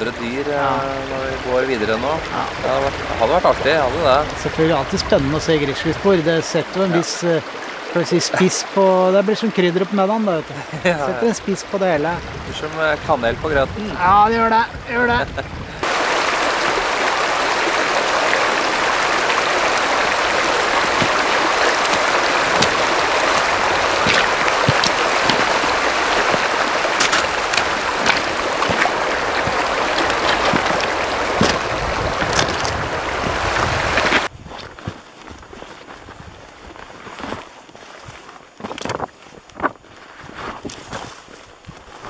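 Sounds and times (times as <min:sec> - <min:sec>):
stream rushing over stones: 0:00.0 - 0:34.3
boots knocking on stones: 0:19.6 - 0:32.9.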